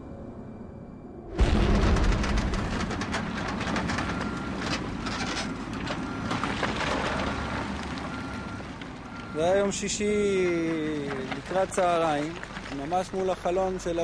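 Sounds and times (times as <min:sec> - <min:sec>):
clatter of dirt and stones: 0:01.4 - 0:14.0.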